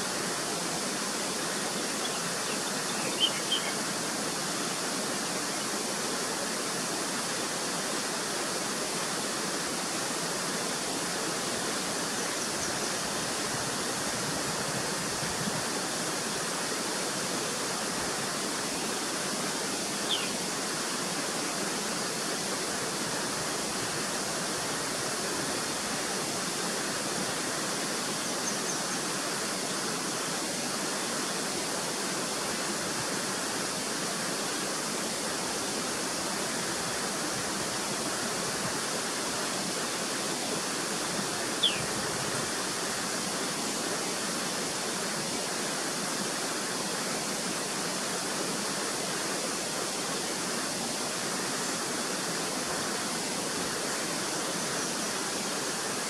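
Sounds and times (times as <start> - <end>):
running water: 0.0 - 56.0
bird chirps: 2.0 - 3.8, 20.1 - 20.4, 41.6 - 41.9.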